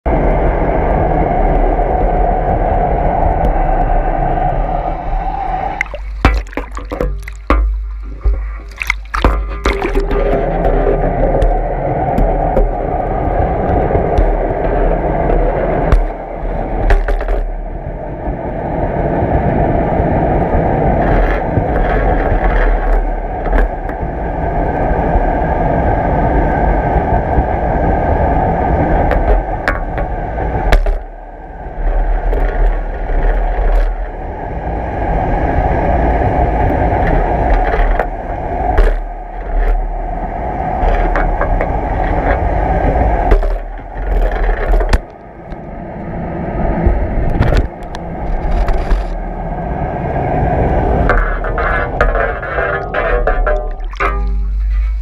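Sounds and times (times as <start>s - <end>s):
underwater water rushing: 0.1s - 55.0s
pole scraping and knocking: 5.8s - 17.7s, 20.8s - 24.2s, 28.9s - 34.4s, 36.6s - 45.2s, 46.8s - 49.2s, 50.6s - 55.0s.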